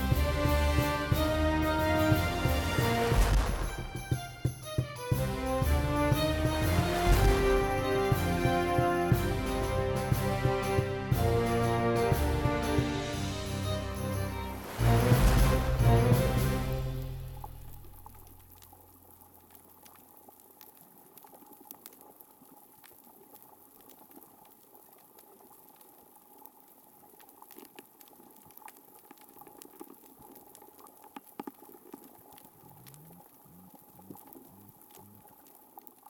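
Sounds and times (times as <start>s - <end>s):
music: 0.0s - 18.4s.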